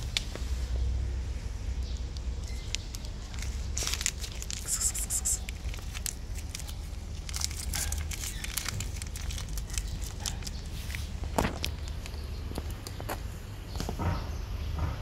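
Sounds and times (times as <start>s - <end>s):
plastic pouch crackling: 2.5s - 12.2s.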